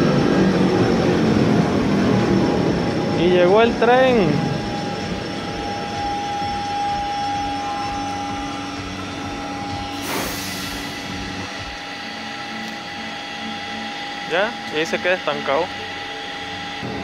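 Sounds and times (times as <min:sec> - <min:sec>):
electric train humming and whining: 0:00.0 - 0:17.0
hissing air burst: 0:09.9 - 0:11.4.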